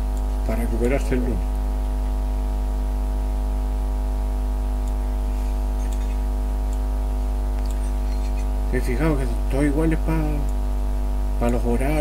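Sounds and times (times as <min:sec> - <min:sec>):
steady low hum: 0:00.0 - 0:12.0
faint ticks: 0:05.8 - 0:06.9.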